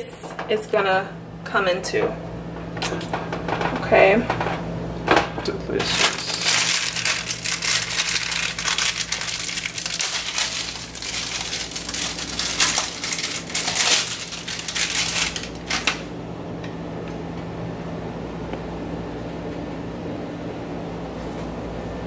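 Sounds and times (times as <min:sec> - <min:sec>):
steady low hum: 0:00.0 - 0:22.0
plastic wrapping crinkling: 0:05.7 - 0:16.1.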